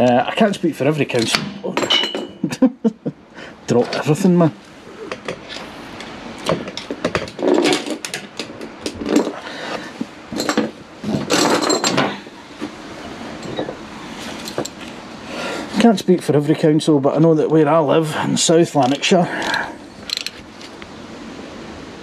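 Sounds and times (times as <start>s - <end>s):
tools clattering on a floor: 1.8s - 2.4s, 6.5s - 9.4s, 10.3s - 12.2s.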